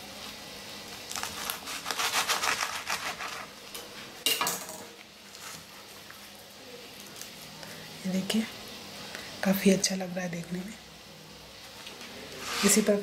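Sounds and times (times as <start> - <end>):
knife sawing through burrito: 1.1 - 3.5.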